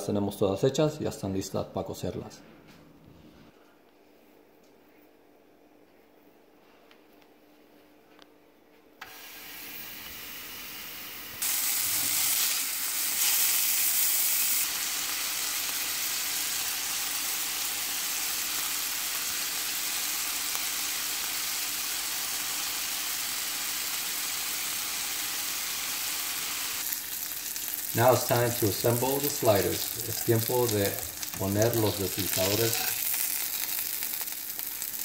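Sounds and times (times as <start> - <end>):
patties sizzling in a frying pan: 9.2 - 35.0.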